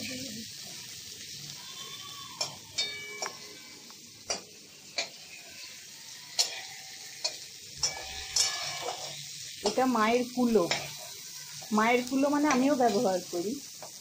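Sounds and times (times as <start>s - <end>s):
vegetables sizzling in oil: 0.0s - 14.0s
metal spatula knocking and scraping pan: 6.4s - 9.8s, 10.6s - 11.7s, 12.4s - 13.0s.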